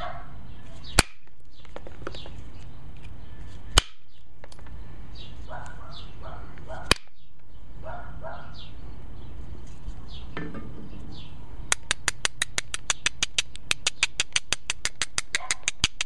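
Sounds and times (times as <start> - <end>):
bird calls: 0.0 - 11.8
stone tapping on flint: 11.7 - 16.0.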